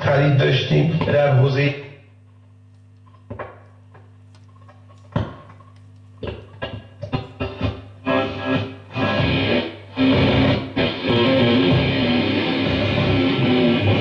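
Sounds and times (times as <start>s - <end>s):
radio low steady hum: 0.0s - 14.0s
music from radio: 6.2s - 14.0s.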